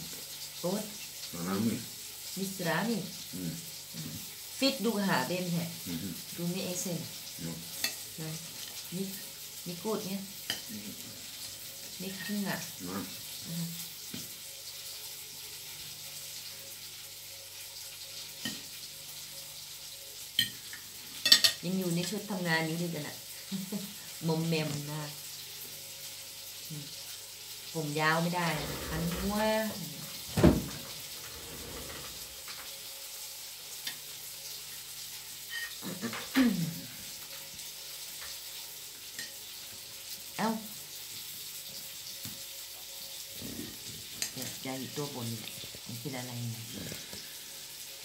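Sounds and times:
cutlery clinking on a plate: 20.4 - 21.6, 35.5 - 36.3
steady hiss: 23.2 - 42.4, 43.2 - 48.0.

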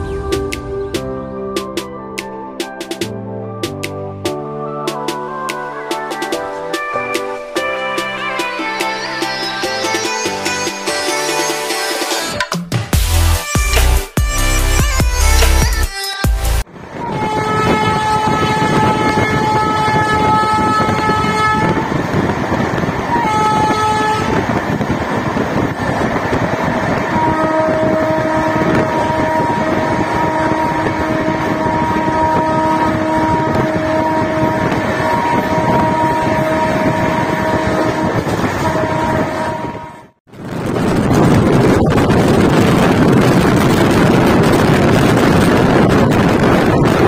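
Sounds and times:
train coaches rumbling: 16.6 - 47.0
locomotive horn blasts: 16.9 - 21.9, 23.1 - 24.5, 27.0 - 40.2.

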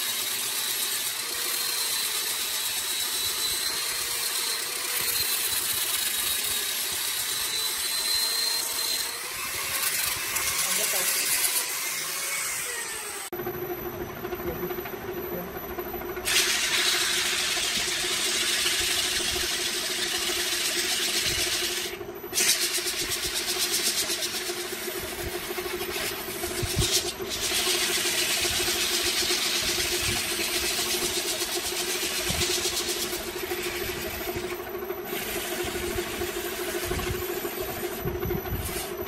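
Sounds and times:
electric wood lathe humming: 0.0 - 13.4, 14.2 - 39.0.

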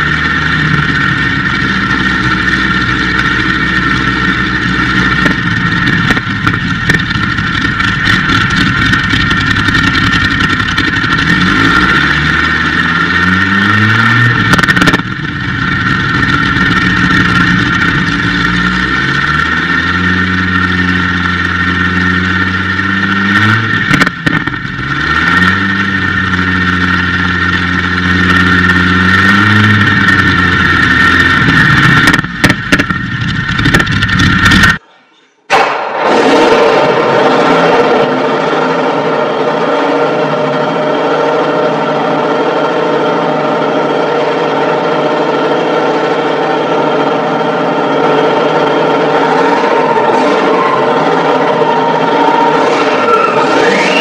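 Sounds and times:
aero engine driving propeller: 0.0 - 34.8, 35.5 - 54.0.

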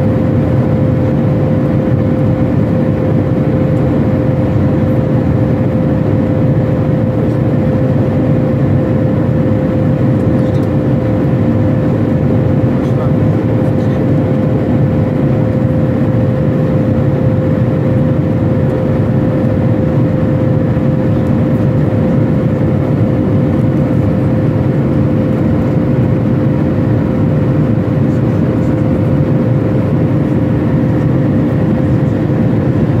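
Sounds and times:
airliner cabin engine roar: 0.0 - 33.0
steady hum: 0.0 - 33.0.

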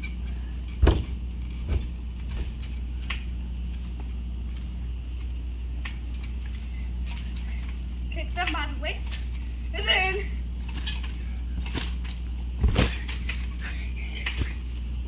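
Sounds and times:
steady low rumble: 0.0 - 15.0
dull thumps on a trampoline: 0.8 - 2.7, 11.6 - 13.3.

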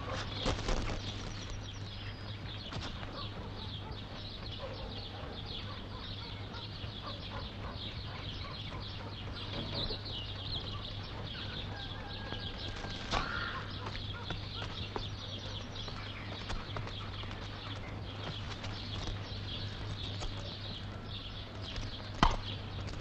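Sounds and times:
small birds chirping: 0.0 - 23.0
steady low hum: 0.0 - 23.0.

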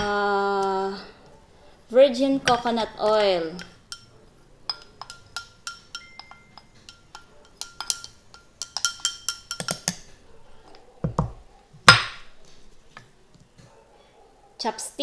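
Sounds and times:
chopstick clinking on glass: 3.6 - 10.1.

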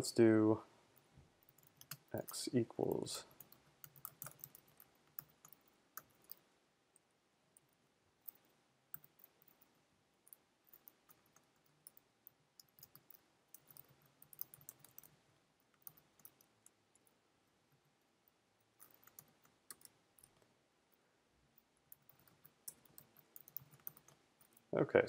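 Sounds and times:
keyboard typing: 1.4 - 6.4, 8.2 - 17.2, 18.8 - 20.4, 21.9 - 24.7.

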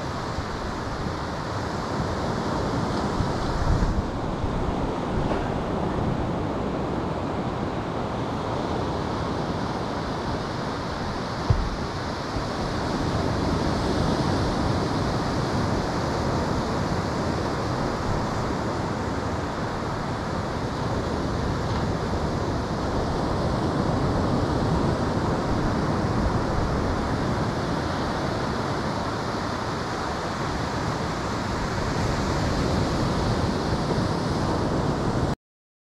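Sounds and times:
ocean surf breaking: 0.0 - 35.3
wind buffeting microphone: 0.2 - 35.3
brief knock: 11.5 - 11.8.

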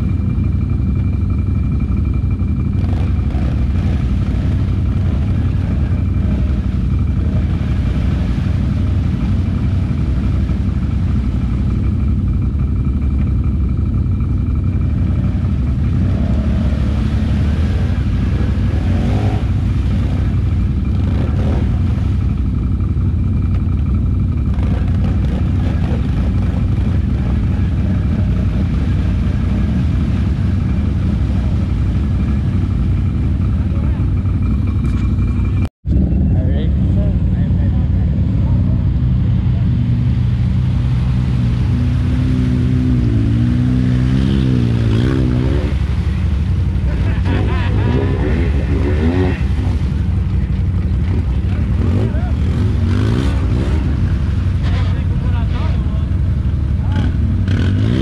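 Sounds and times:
atv engine running: 0.0 - 58.0.

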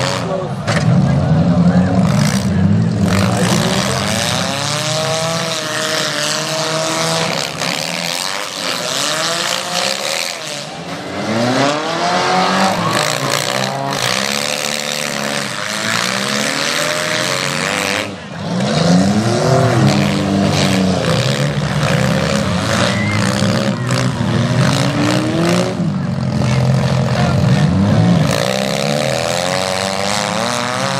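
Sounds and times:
car engines revving: 0.0 - 30.9.

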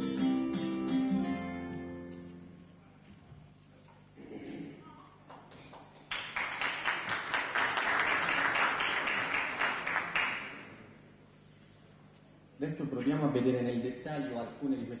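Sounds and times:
audience applauding: 5.3 - 10.8.

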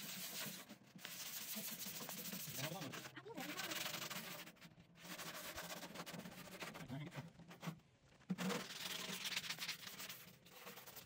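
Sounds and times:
sanding sponge rubbing on steel: 0.0 - 6.9.

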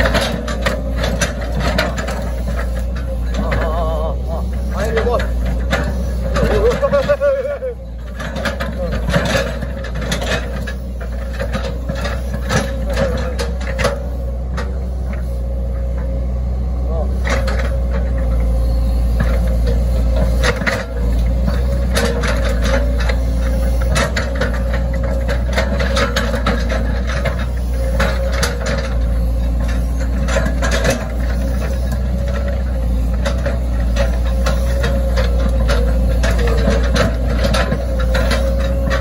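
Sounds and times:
excavator diesel engine whining: 0.0 - 39.0
knocks and rattles: 8.0 - 14.8, 19.2 - 39.0.

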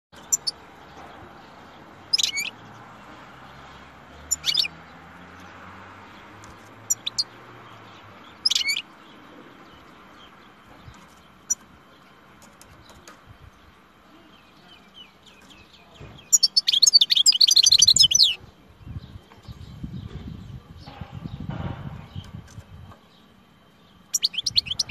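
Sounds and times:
fast twittering birdsong: 0.1 - 24.9.

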